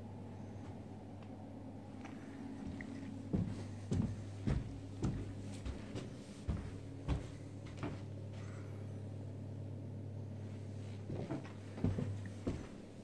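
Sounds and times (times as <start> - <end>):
steady low hum: 0.0 - 13.0
footsteps on indoor floor: 2.0 - 8.6, 10.8 - 13.0.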